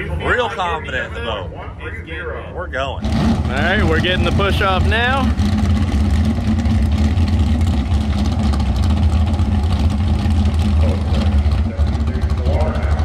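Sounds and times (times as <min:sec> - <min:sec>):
boat engine idling: 0:03.1 - 0:13.0.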